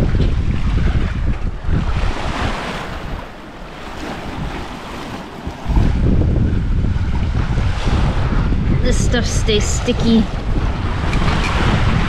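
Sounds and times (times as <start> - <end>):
waves rushing along hull: 0.0 - 12.0
wind buffeting microphone: 0.0 - 12.0.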